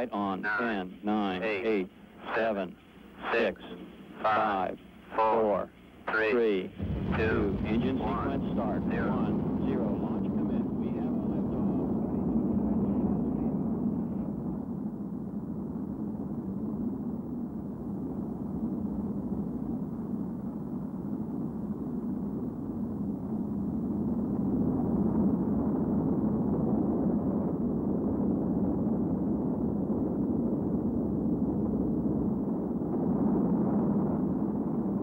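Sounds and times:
rocket engines deep rushing: 6.6s - 14.1s.

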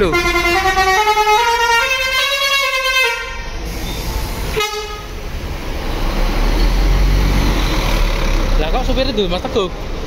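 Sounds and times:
bus horn toot: 0.0s - 3.6s, 4.5s - 5.2s
bus engine rumble: 0.0s - 10.0s.

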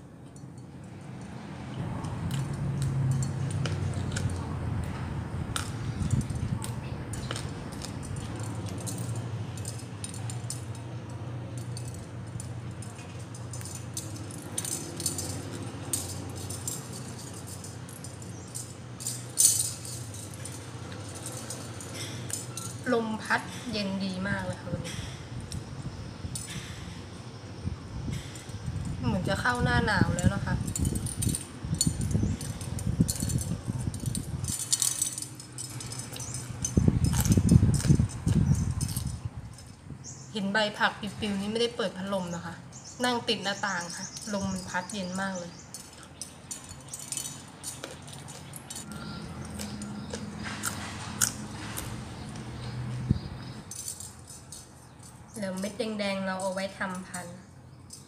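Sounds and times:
low wind rumble: 0.0s - 56.8s
shell wind chime clinking: 2.0s - 4.4s, 5.6s - 23.8s, 28.1s - 40.3s, 41.4s - 58.0s.

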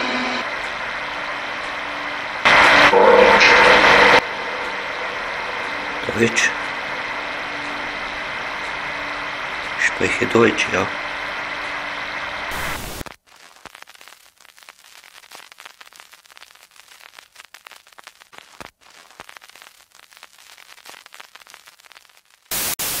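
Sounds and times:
loud static hiss from amplifier: 0.0s - 23.0s
white-noise static burst: 0.0s - 23.0s
faint crackling static: 0.2s - 23.0s.

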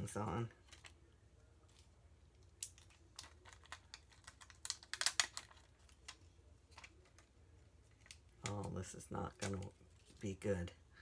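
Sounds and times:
fingers clicking and crinkling plastic: 2.4s - 10.3s.

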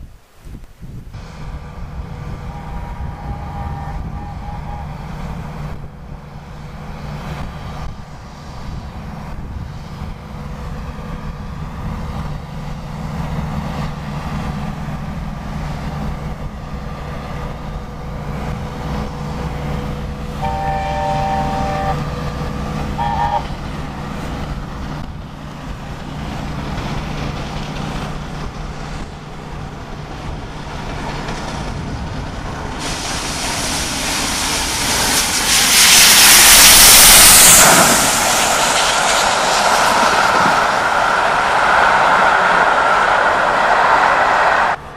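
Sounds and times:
locomotive exhaust rush: 1.1s - 44.9s
train wheel noise: 1.2s - 44.9s
steam locomotive chime whistle: 2.4s - 5.0s, 20.4s - 22.2s, 23.0s - 23.5s.

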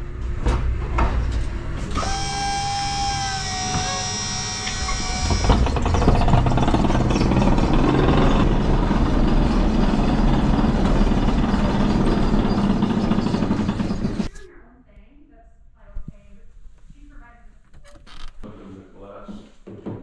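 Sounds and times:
pallet jack motor whining: 1.9s - 14.3s
pallet rumbling across floor: 5.2s - 14.3s.

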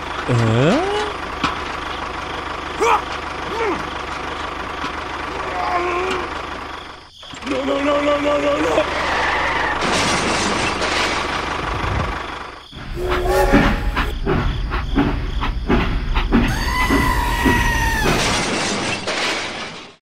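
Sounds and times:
locomotive chuffing: 0.0s - 20.0s
two-note train whistle: 12.9s - 14.1s.

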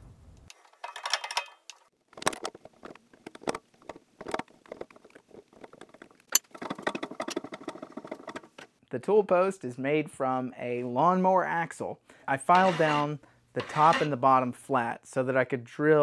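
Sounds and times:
tap scraping metal: 12.5s - 14.2s.

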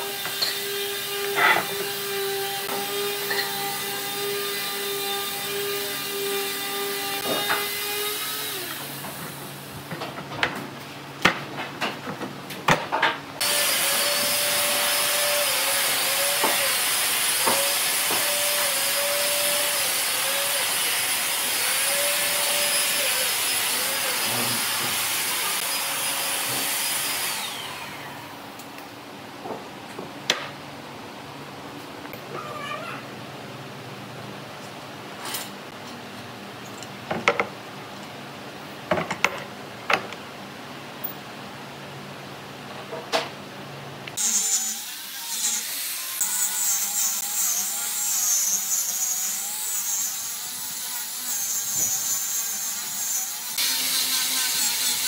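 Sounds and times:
woodshop machine whining: 13.4s - 28.4s.

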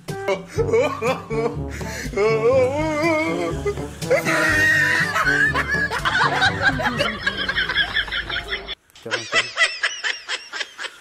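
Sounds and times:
background music with bass: 0.0s - 7.4s
snickering laugh sound effect: 0.2s - 1.6s, 3.4s - 11.0s.

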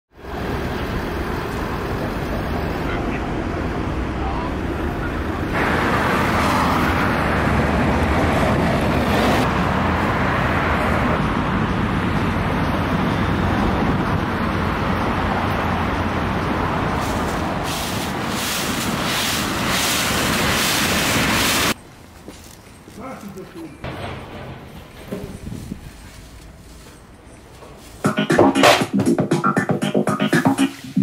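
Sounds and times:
street traffic: 0.1s - 31.0s
footsteps in dry leaves: 16.8s - 23.8s, 25.3s - 28.1s.

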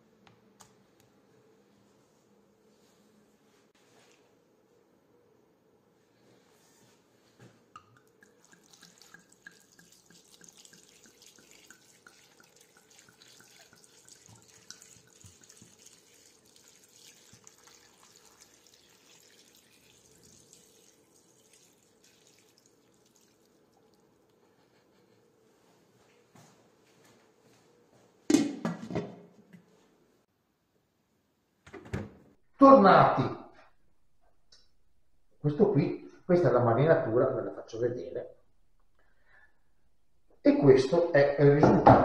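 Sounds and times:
wine trickling into a pan: 7.8s - 24.4s.

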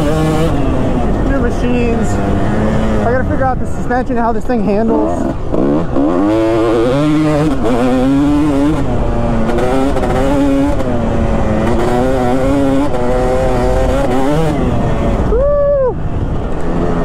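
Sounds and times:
motorcycle engine revving: 0.0s - 15.4s.

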